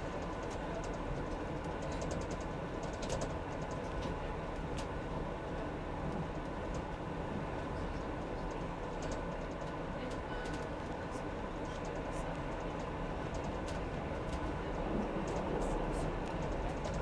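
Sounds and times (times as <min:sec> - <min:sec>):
train rumbling on track: 0:00.0 - 0:17.0
light clicks and ticks: 0:00.1 - 0:04.9, 0:07.9 - 0:11.0, 0:11.6 - 0:14.5, 0:15.2 - 0:17.0.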